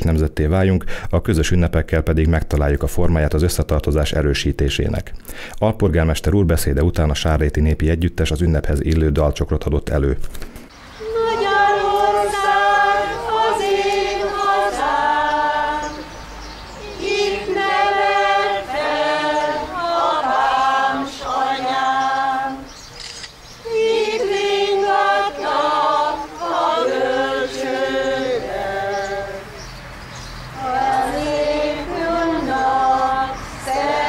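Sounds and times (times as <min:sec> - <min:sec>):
mixed choir singing unaccompanied: 0:10.8 - 0:22.8, 0:23.6 - 0:34.0.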